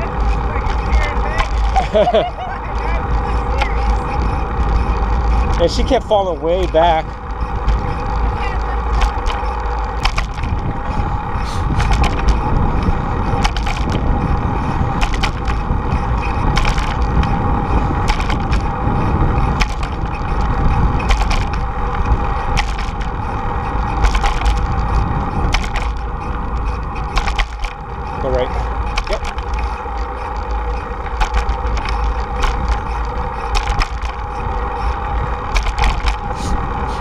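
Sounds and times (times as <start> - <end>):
tyres rolling on pavement: 0.0 - 37.0
wind on microphone: 0.0 - 37.0
bike jolting clicks and knocks: 8.9 - 12.6, 13.2 - 14.2, 15.0 - 17.4, 18.0 - 18.8, 19.5 - 23.3, 23.9 - 26.1, 26.9 - 34.7, 35.4 - 36.4.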